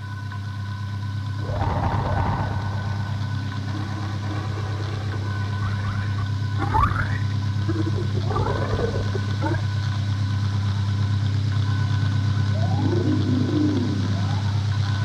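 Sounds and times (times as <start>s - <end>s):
electronic drone: 0.0s - 15.0s.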